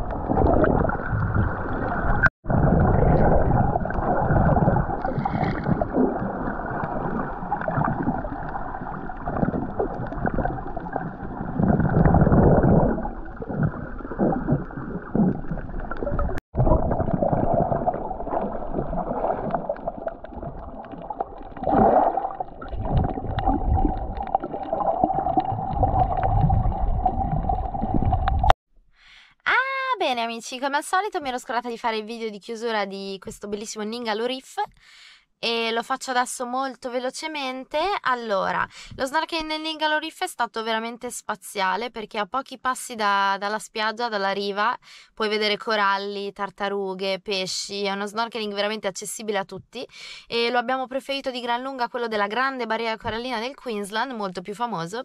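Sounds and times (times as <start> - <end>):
muffled underwater gurgling: 0.0 - 28.5.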